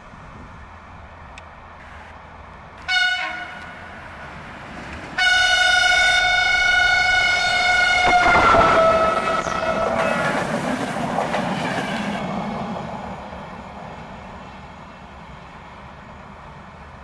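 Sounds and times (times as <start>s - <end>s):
train wheels on track: 0.0s - 17.0s
locomotive horn blasts: 2.9s - 3.8s, 5.2s - 10.0s.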